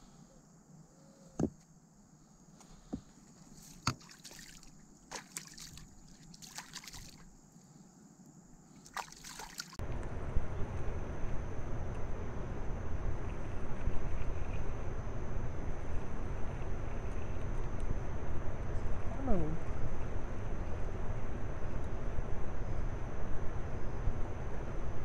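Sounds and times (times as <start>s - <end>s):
hands splashing in water: 3.6s - 7.2s, 8.8s - 9.8s.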